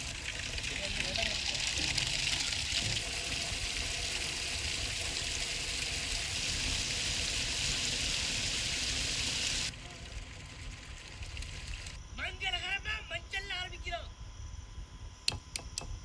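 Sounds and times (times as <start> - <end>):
water gushing into metal pot: 0.0 - 12.0.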